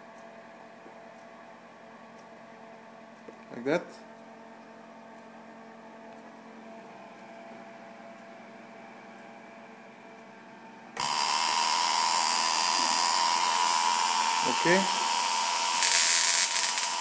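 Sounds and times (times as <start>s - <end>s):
tesla coil buzzing hiss of sparks: 11.0s - 17.0s.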